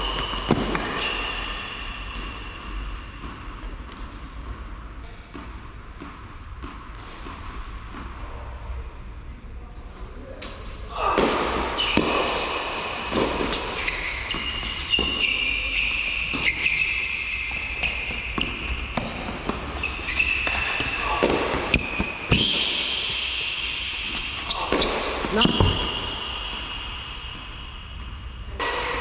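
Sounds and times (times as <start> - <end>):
tennis shoes squeaking on court: 0.0 - 2.8, 11.7 - 12.5, 13.1 - 26.8
racket striking tennis ball: 17.8 - 27.5.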